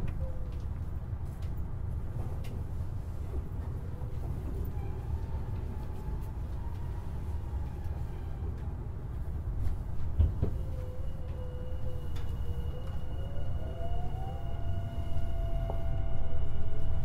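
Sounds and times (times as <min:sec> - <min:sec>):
train wheels rumbling on rail: 0:00.0 - 0:17.0
lower whine: 0:09.7 - 0:17.0.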